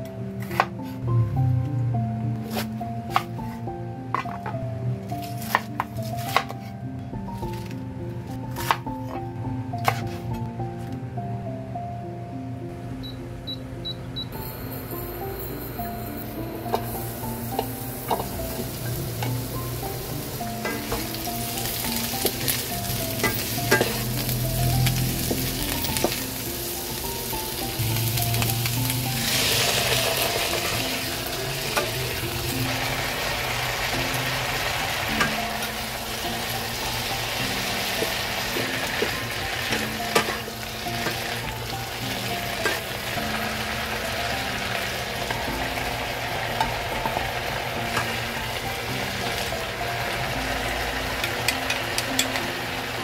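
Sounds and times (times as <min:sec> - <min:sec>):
vegetables sizzling in hot oil: 0:16.7 - 0:53.0.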